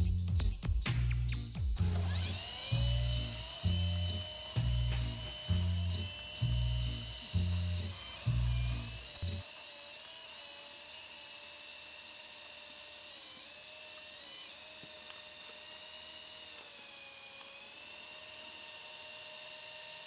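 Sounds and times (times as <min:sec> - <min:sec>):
rc helicopter motor whine: 0:01.8 - 0:20.0.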